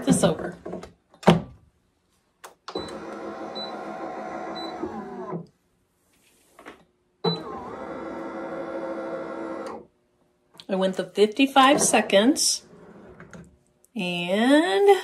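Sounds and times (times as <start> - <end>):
heat press motor running: 2.7 - 5.5, 7.3 - 9.9.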